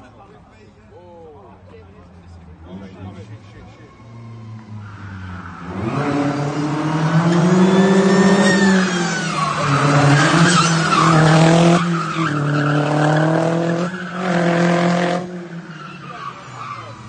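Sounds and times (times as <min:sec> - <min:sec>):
car engine revving hard: 0:04.3 - 0:15.7
tyres squealing: 0:07.4 - 0:17.0.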